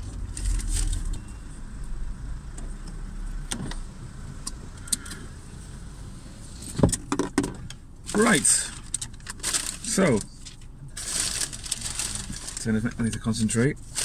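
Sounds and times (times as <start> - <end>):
car rolling with low rumble: 0.0 - 14.0.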